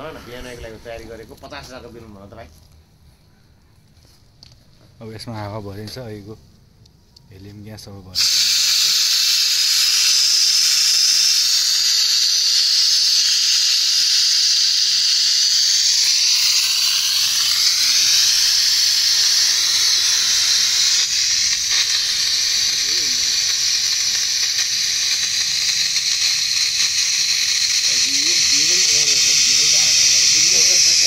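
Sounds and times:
gas hissing into balloon: 0.0s - 1.2s, 8.2s - 31.0s.

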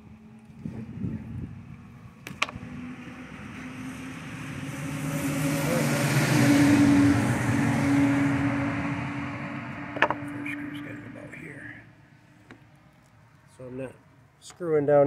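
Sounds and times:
vehicle passing by: 0.6s - 12.3s.

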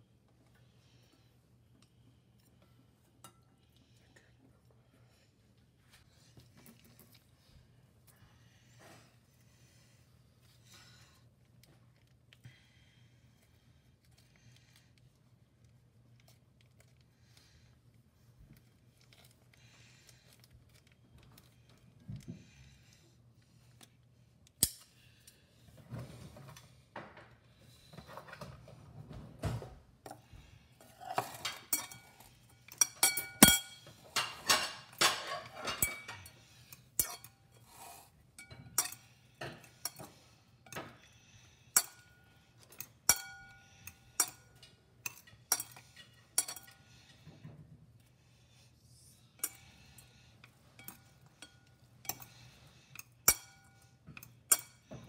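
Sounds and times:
utensils clinking on ceramic bowl: 30.8s - 37.4s, 38.4s - 41.0s, 41.8s - 46.9s, 50.8s - 55.0s.

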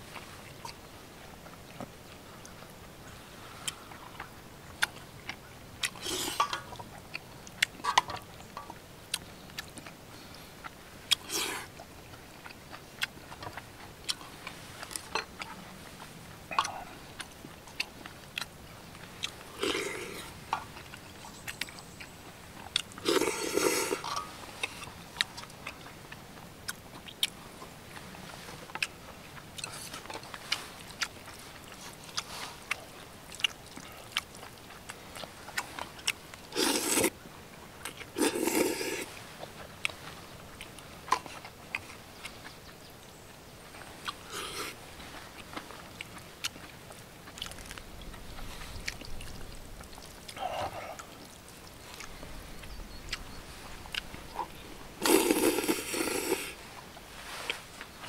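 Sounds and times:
chewing with clicks and smacks: 0.1s - 58.0s
noodles being slurped: 5.9s - 6.7s, 19.4s - 20.4s, 22.8s - 24.8s, 36.5s - 37.2s, 38.0s - 39.2s, 44.1s - 44.8s, 53.6s - 58.0s.

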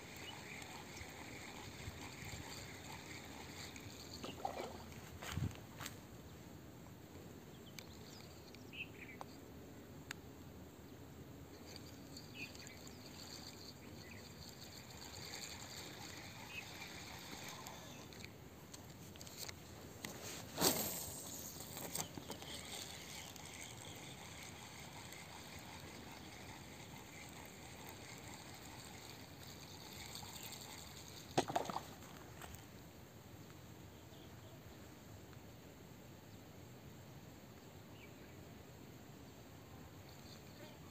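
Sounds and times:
faint insect chirring: 0.0s - 5.1s, 7.5s - 10.2s, 10.8s - 19.7s, 20.6s - 32.6s, 39.2s - 40.9s.

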